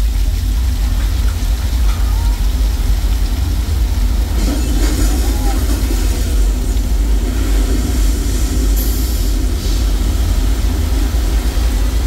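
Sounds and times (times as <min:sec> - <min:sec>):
water rushing with deep rumble: 0:00.0 - 0:12.0.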